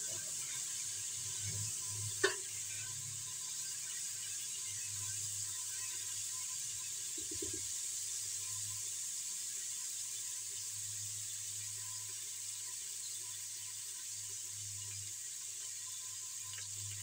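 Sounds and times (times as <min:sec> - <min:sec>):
spices sizzling in hot ghee: 0:00.0 - 0:17.0.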